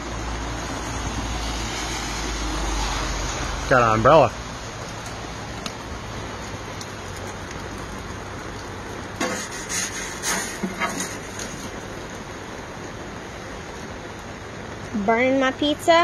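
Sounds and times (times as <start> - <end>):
rain on an umbrella: 0.0 - 16.0
loud raindrop taps: 4.7 - 9.5.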